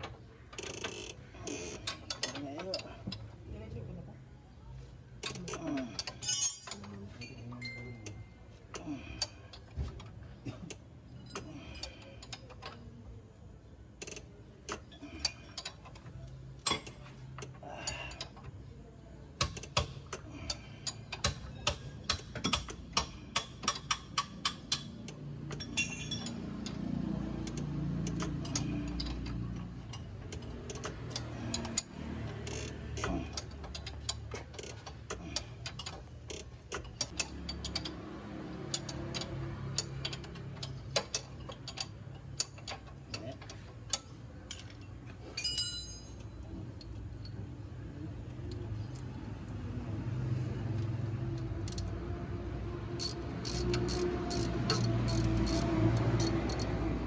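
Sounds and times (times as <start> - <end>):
wrench clicking: 0.6 - 3.2, 14.0 - 18.6, 19.4 - 45.6, 50.2 - 57.0.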